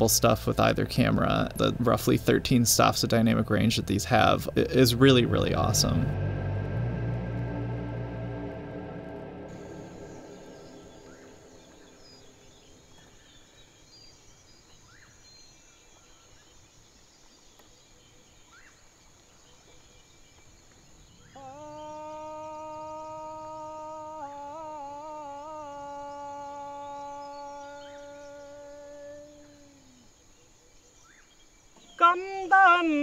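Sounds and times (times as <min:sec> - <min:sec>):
man singing a long held call: 0:21.3 - 0:30.1, 0:32.0 - 0:33.0.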